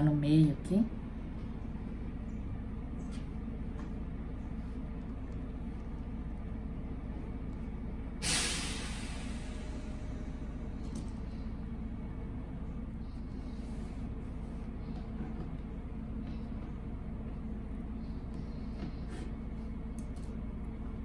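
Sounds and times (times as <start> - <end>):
sudden hiss: 8.2 - 10.2.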